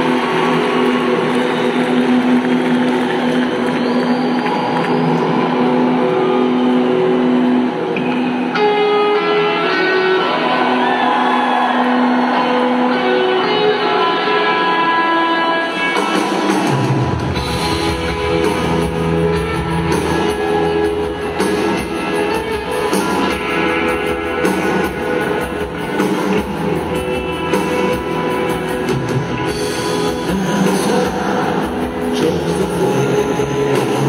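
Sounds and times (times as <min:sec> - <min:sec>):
electric guitar: 0:00.0 - 0:34.0
bass guitar: 0:05.3 - 0:34.0
drum kit: 0:15.8 - 0:34.0.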